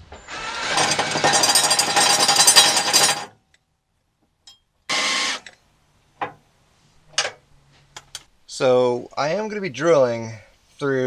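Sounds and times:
impact wrench hammering: 0.6s - 3.3s.

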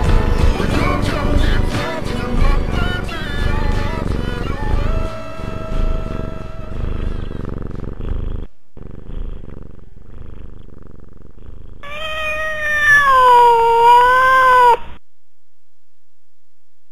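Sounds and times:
cat purring: 0.0s - 15.0s
cat meowing: 11.8s - 15.0s.

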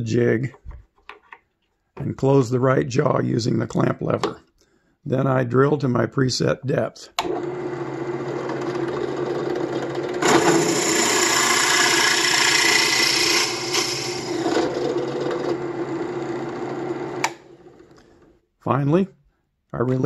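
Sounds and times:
drill press motor humming: 7.2s - 18.0s
drill bit cutting into wood: 7.3s - 17.5s.

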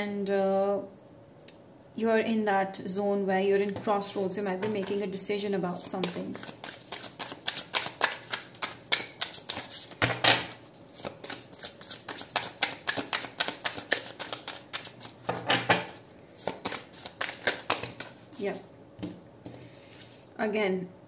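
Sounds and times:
cards shuffling by hand: 4.6s - 10.1s, 10.9s - 18.6s.

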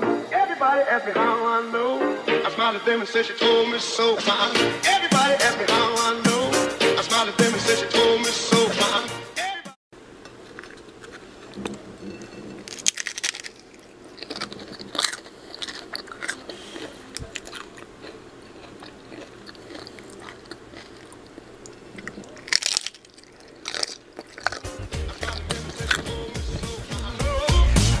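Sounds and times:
crunching crisp tostada: 10.2s - 27.2s
person chewing: 10.2s - 27.2s.

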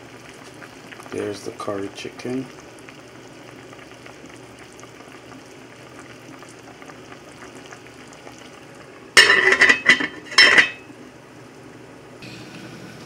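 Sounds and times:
pot boiling and bubbling: 0.0s - 13.0s
metal pot lid clattering: 9.2s - 10.8s.

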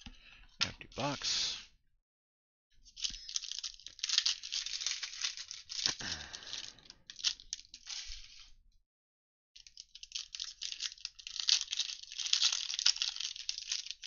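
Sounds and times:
foil wrapper tearing and crinkling: 3.0s - 8.5s, 9.6s - 14.0s.

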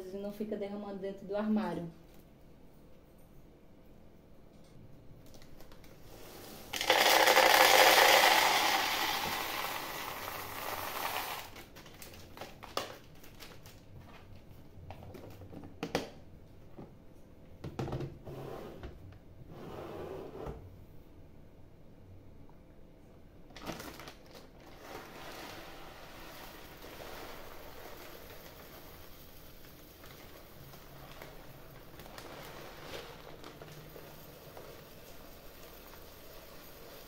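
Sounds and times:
dry food pouring into container: 6.2s - 12.3s, 24.6s - 37.0s.

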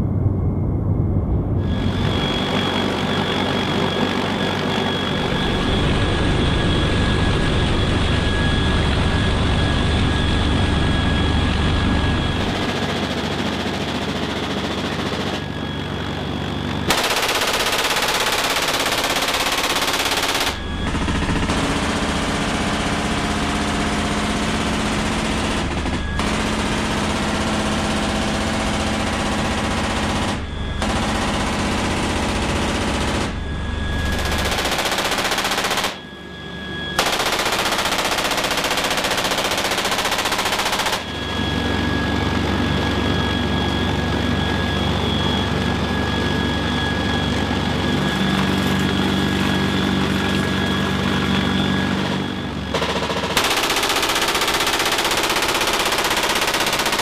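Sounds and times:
helicopter rotor hum: 0.0s - 57.0s
turbine whine: 0.0s - 57.0s
machine gun firing bursts: 16.9s - 33.3s, 34.1s - 36.0s, 37.0s - 41.2s, 52.7s - 57.0s.

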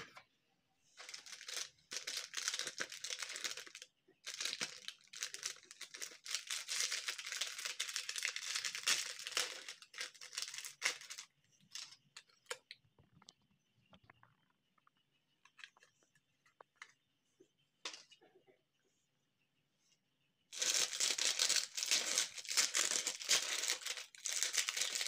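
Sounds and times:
plastic wrapper tearing and crinkling: 1.0s - 11.9s, 20.5s - 25.0s
plastic tray crinkles and clicks: 1.0s - 13.4s.

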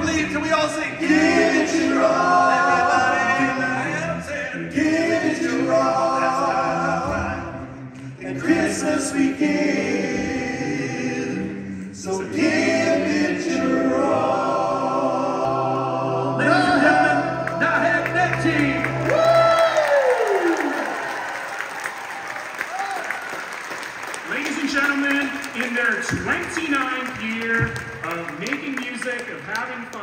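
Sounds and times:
male vocal group singing a cappella: 0.8s - 19.1s.

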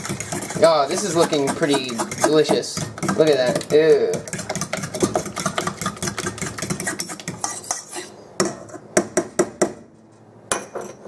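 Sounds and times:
fork stirring in metal bowl: 0.0s - 8.7s.

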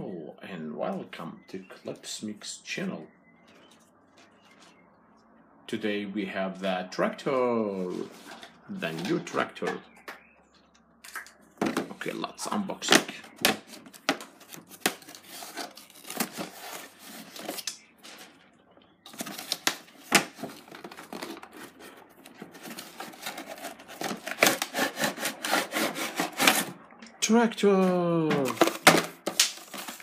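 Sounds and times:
cardboard box handled and crinkling: 13.3s - 18.3s, 19.1s - 25.1s, 28.4s - 30.0s.

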